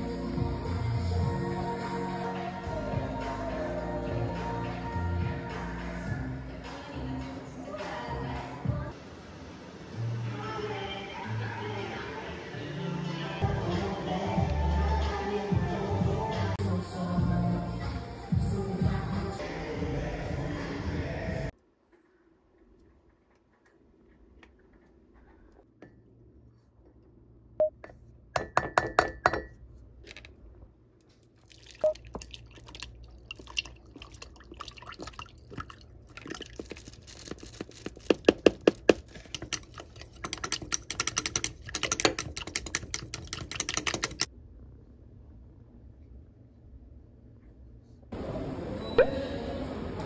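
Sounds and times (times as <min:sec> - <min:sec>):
milk pouring into a glass: 0:31.4 - 0:37.7.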